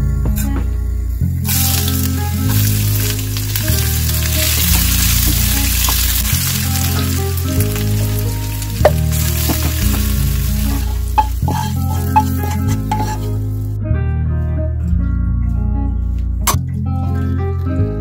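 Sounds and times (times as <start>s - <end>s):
background music with bass: 0.0s - 18.0s
oil sizzling in frying pan: 1.5s - 13.4s.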